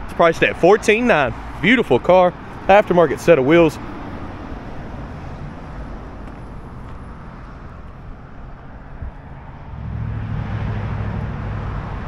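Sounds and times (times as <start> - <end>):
road traffic hum: 0.0 - 12.0.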